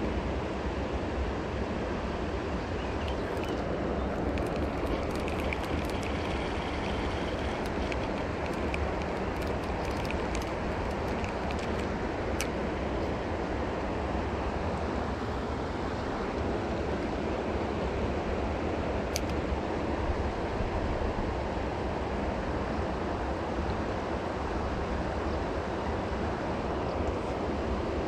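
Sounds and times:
flowing river water: 0.0s - 28.0s
wind on microphone: 2.2s - 12.6s
faint ticks: 4.2s - 12.6s.

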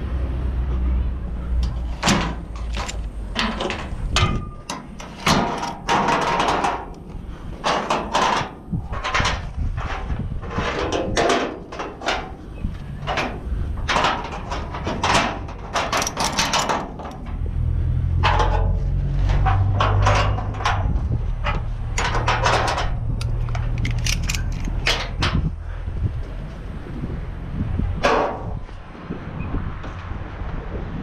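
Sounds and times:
metal clanks and rattles: 1.3s - 26.6s, 28.0s - 28.8s.

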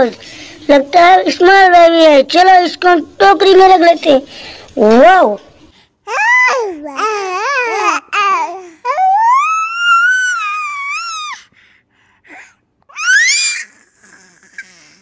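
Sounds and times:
baby babbling and squealing: 6.1s - 11.5s, 12.9s - 15.0s.

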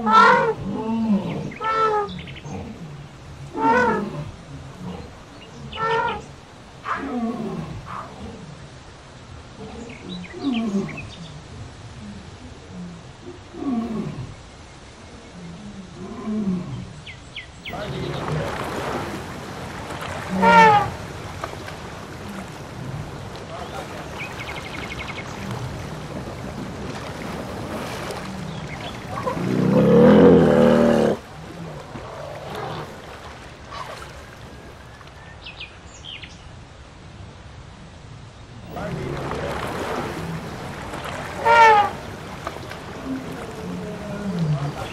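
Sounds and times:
deep growling animal calls: 0.0s - 8.7s, 15.0s - 35.0s, 38.7s - 44.9s.

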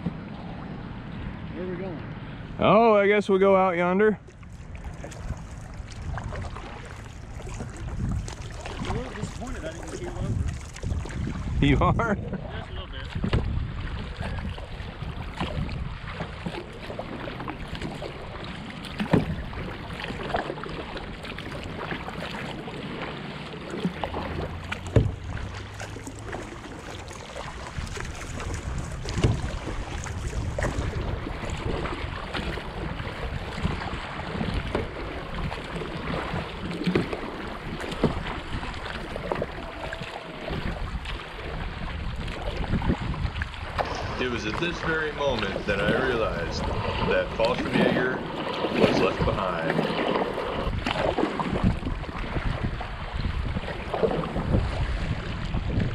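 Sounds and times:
water sloshing: 0.0s - 55.9s
paddle strokes: 4.2s - 55.9s
wind buffeting microphone: 4.3s - 23.0s, 23.8s - 55.9s.

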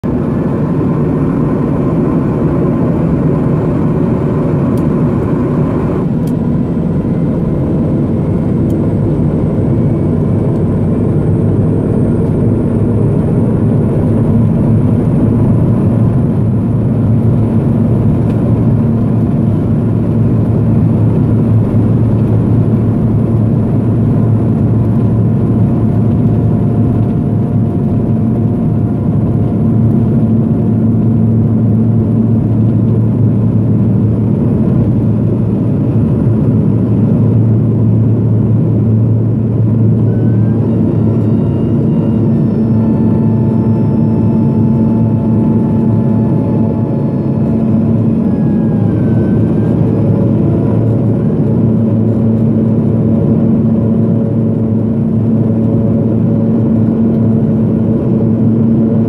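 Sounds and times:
high turbine whine: 0.0s - 59.0s
turboprop engine drone: 0.0s - 59.0s.

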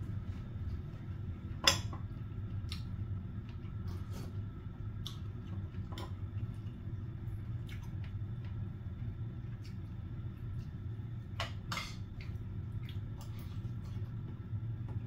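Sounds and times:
low hum: 0.0s - 15.0s
wet chewing: 5.0s - 8.6s.

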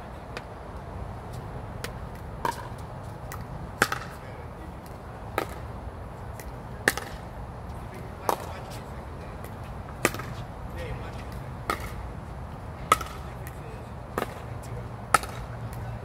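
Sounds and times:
paddles striking a ball: 1.8s - 4.2s, 5.3s - 5.7s, 6.4s - 7.2s, 10.0s - 10.4s, 11.6s - 12.0s, 12.9s - 14.5s, 15.1s - 15.5s.

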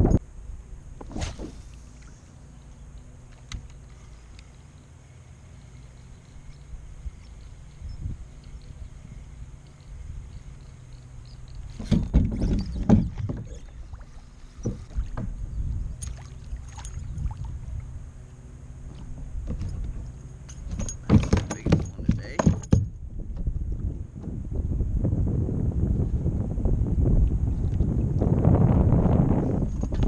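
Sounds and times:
water and wind rumble: 0.0s - 30.0s
knocks and rattles: 11.7s - 13.6s, 18.9s - 23.5s.

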